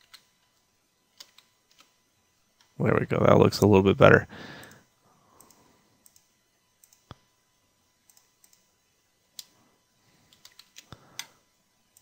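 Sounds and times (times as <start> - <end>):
computer mouse clicks: 1.2 - 2.0, 5.4 - 7.2, 8.1 - 8.7, 10.3 - 12.0.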